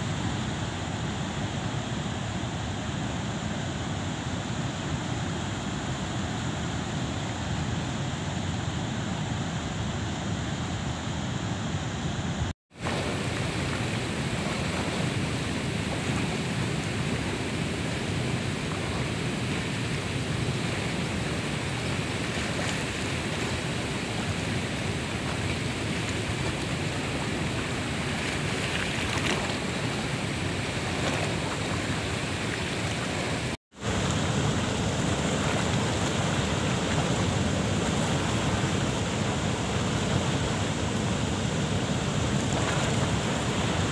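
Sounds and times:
river water rushing: 12.0 - 43.9.

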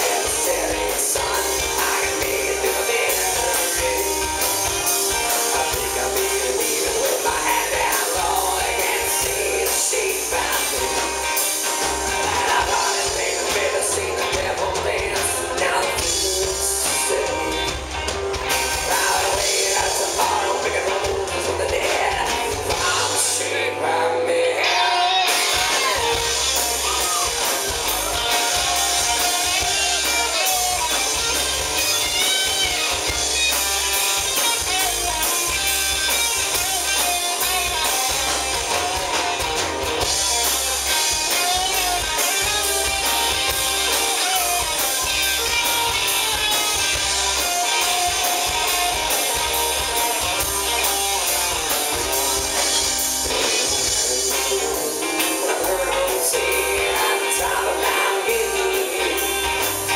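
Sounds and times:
drum kit beat: 0.0 - 23.6, 25.0 - 59.9
bass guitar: 0.0 - 59.9
electric guitar: 0.0 - 59.9.

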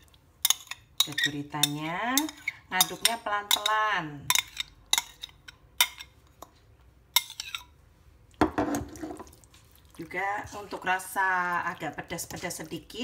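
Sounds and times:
spoon clinking against metal bowl: 0.4 - 6.5, 7.1 - 7.7
stirring thick marinade: 8.7 - 13.0.

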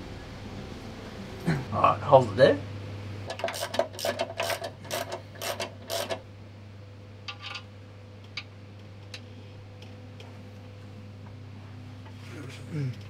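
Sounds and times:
ratchet wrench clicking: 3.3 - 6.2.

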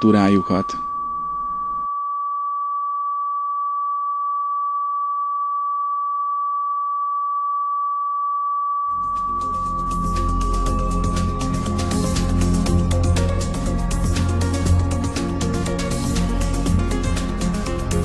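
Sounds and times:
high-pitched electronic tone: 0.0 - 2.1, 8.8 - 18.0
music: 9.0 - 18.0.

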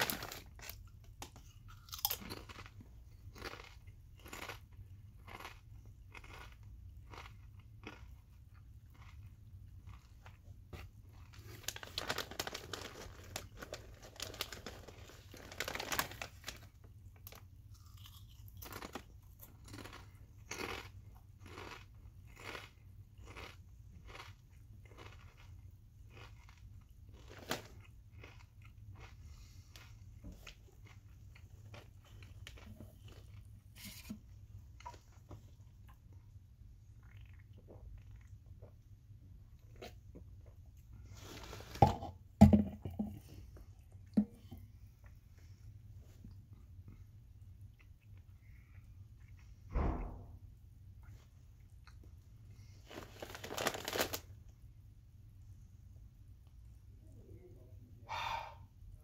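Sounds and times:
person chewing crisp chips: 0.0 - 38.9, 51.6 - 54.3.

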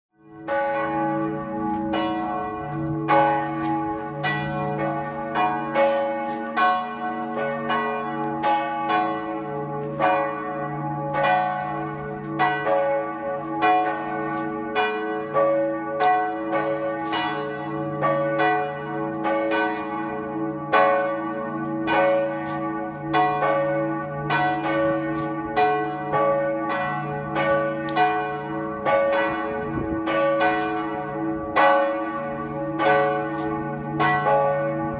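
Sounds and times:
church bells pealing: 0.2 - 34.9.

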